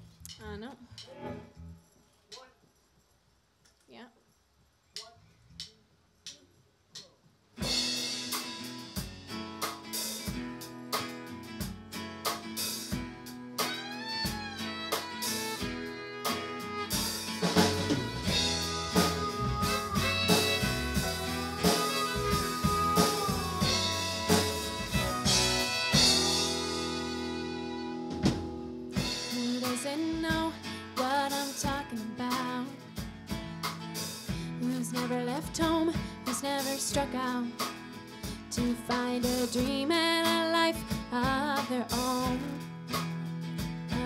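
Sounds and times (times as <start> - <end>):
drum kit: 0.0 - 1.4, 5.0 - 44.0
guitars: 7.6 - 44.0
fiddle: 13.6 - 29.2.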